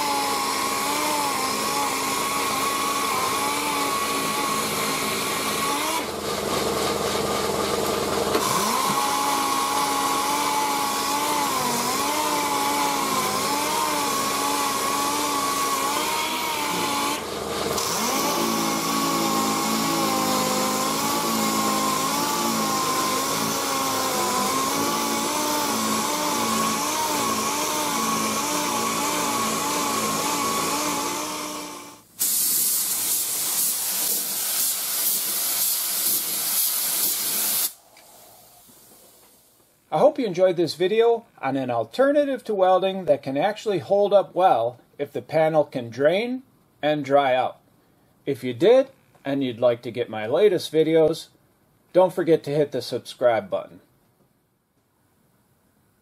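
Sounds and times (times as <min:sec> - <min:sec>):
air sander hissing and whining: 0:00.0 - 0:39.4.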